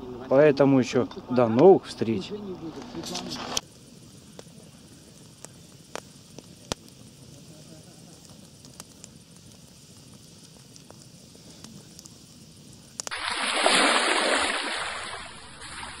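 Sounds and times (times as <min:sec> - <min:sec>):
campfire crackling: 0:00.0 - 0:16.0
steady high hiss: 0:00.0 - 0:16.0
water splash sound effect: 0:13.1 - 0:16.0.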